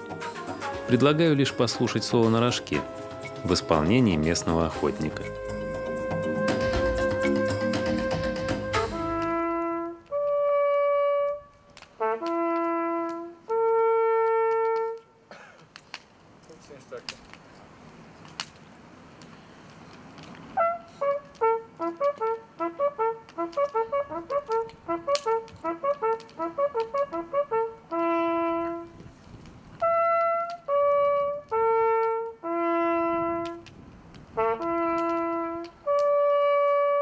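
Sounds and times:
brass hunting horn blowing: 2.8 - 15.2, 20.6 - 29.0, 29.8 - 33.7, 34.4 - 37.0.

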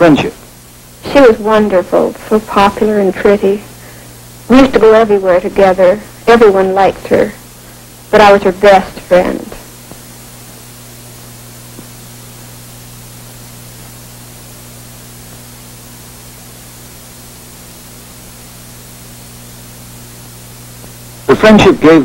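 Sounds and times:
film soundtrack hiss: 0.0 - 22.0
low steady hum: 0.0 - 22.0.

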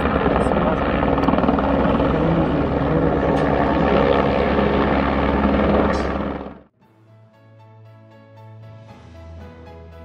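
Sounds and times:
helicopter rotor and engine: 0.0 - 6.7.

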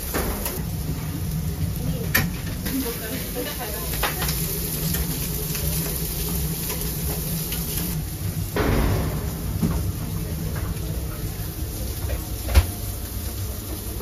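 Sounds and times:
steady low hum: 7.9 - 13.5
metal utensils knocking on grill: 8.5 - 11.4.

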